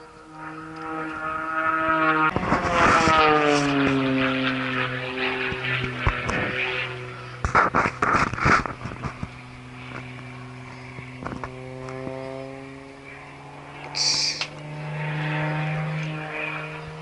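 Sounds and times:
propeller plane engine droning: 0.0s - 17.0s
short hiss: 14.0s - 14.5s.

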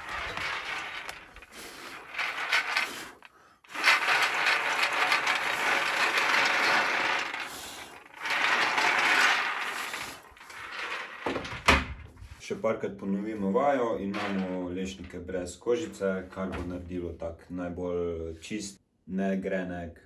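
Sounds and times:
nuts rattling in shaken tray: 0.0s - 11.5s.

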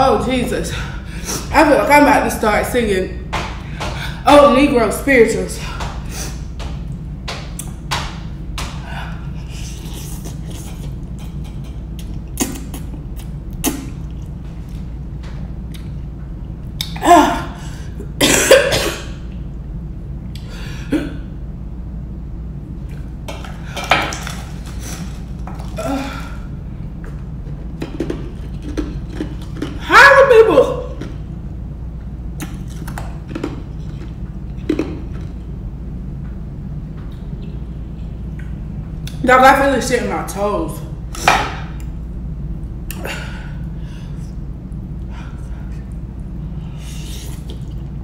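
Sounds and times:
steady low hum: 0.0s - 48.0s
person coughing: 18.2s - 19.2s, 20.8s - 21.3s.

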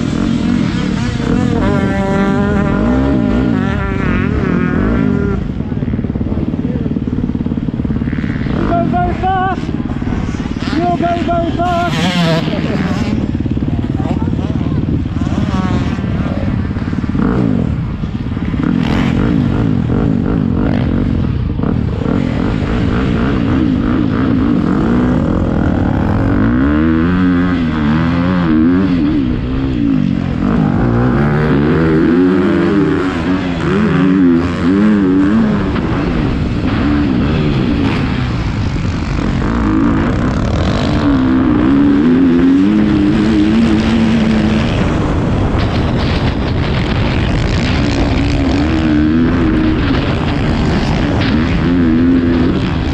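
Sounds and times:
motocross bike engine revving: 0.0s - 52.9s.

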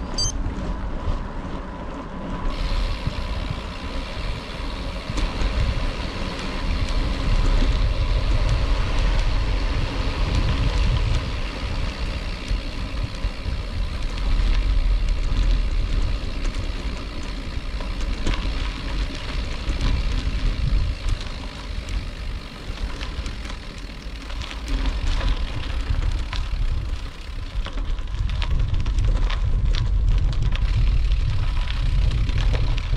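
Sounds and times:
vehicle rumbling along a road: 0.0s - 32.9s.

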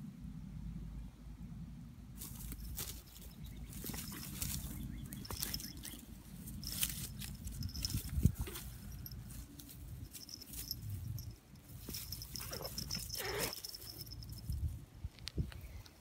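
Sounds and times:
cats scuffling in dry grass: 2.2s - 14.8s.

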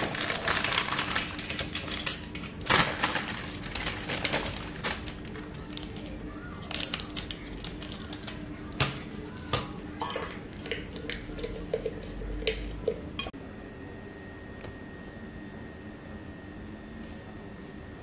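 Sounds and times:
sachet crinkling: 0.0s - 8.4s.

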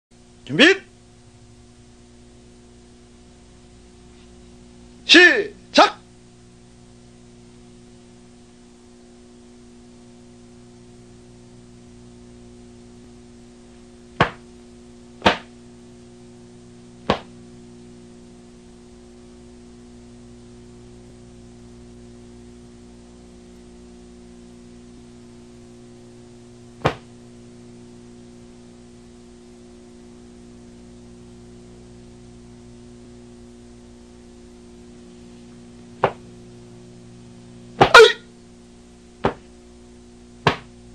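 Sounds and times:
low electrical hum: 0.1s - 40.9s
sharp snaps of strikes: 14.2s - 14.5s, 15.2s - 15.5s, 17.0s - 17.3s, 26.8s - 27.1s, 37.8s - 38.2s, 40.4s - 40.8s.

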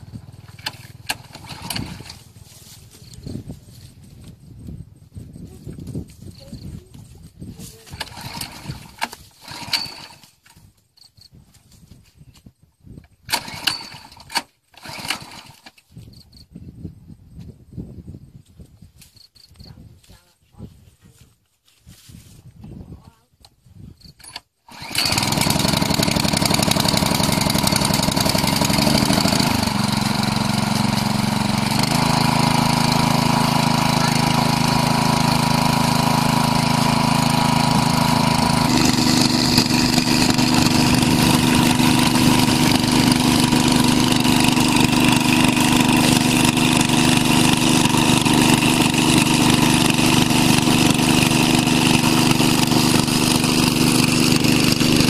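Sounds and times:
water pump petrol engine running: 0.0s - 2.4s, 7.8s - 10.2s, 13.3s - 15.7s, 24.7s - 55.0s.

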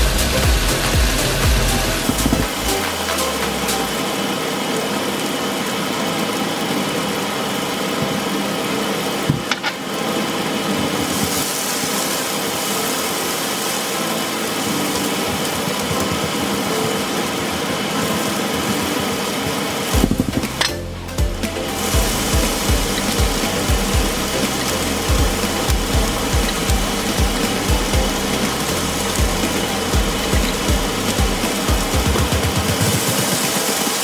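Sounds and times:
food sizzling in hot oil: 0.0s - 34.0s.

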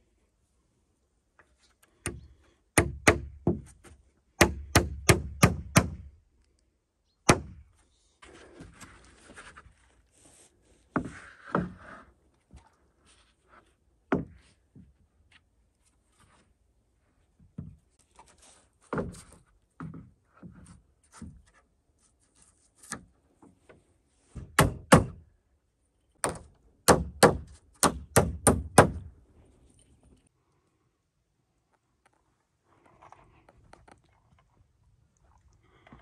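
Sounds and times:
hatchet hammering nails: 2.8s - 3.6s, 4.4s - 6.1s, 24.5s - 25.2s, 26.2s - 29.1s
wooden boards knocking and scraping: 10.9s - 12.1s, 18.8s - 21.6s.

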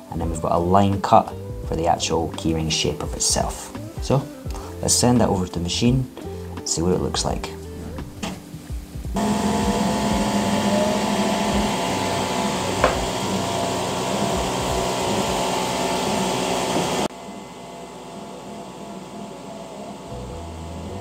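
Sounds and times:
faint rising whine: 7.6s - 21.0s
laser engraver whir: 9.2s - 20.8s.

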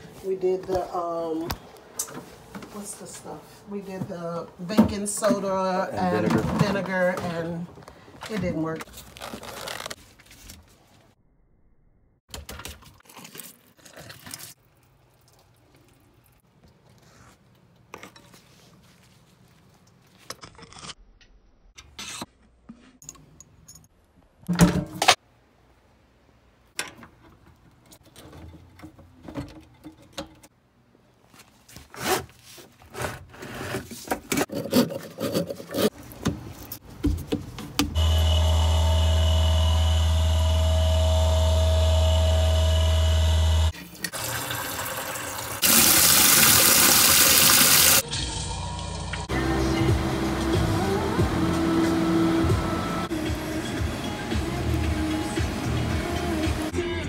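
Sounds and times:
garbage disposal motor humming: 38.0s - 56.7s.

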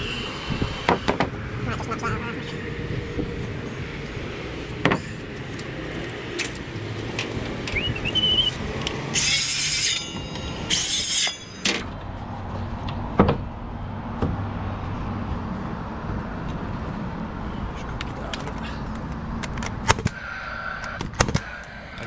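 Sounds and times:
circular saw cutting plywood: 9.1s - 11.8s
saw blade spinning: 9.2s - 11.6s.

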